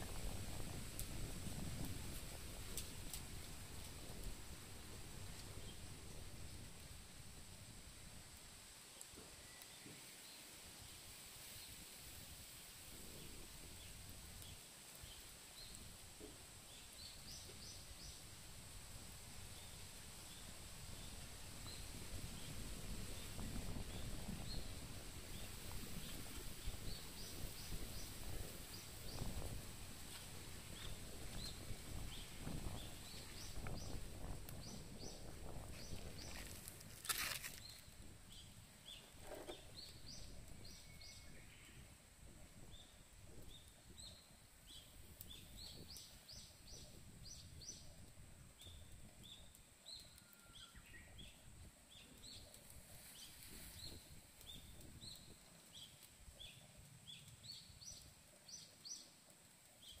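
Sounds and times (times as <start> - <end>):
small birds chirping: 13.0 - 18.4, 19.5 - 42.0, 42.6 - 60.0.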